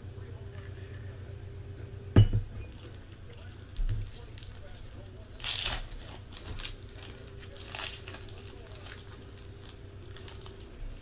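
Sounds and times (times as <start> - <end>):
foil wrapper crinkling and tearing: 2.7 - 11.0.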